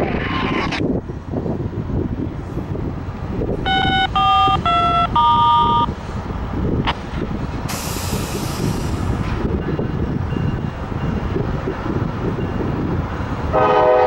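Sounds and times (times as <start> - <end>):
rumble of traffic and rail: 0.0 - 14.0
brief hiss: 7.7 - 9.0.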